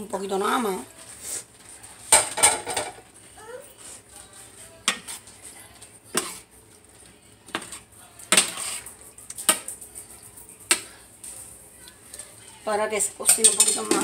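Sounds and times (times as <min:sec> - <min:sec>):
utensils clinking on metal pots: 0:01.6 - 0:03.1, 0:07.5 - 0:11.5, 0:12.1 - 0:14.0.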